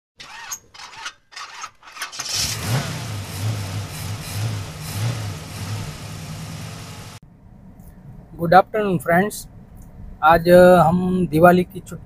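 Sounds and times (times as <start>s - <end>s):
car engine sputtering and starting: 2.0s - 7.2s
car engine throbbing rumble: 2.3s - 7.8s.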